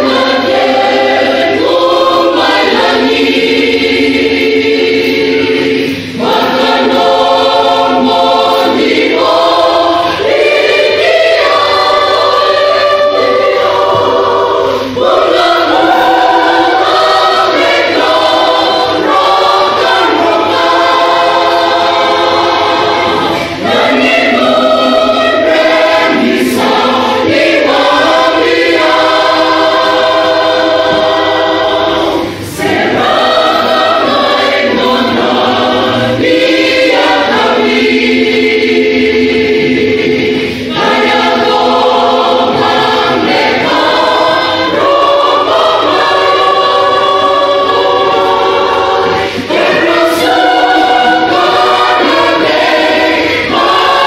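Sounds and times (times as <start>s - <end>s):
choir singing a hymn: 0.0s - 54.0s.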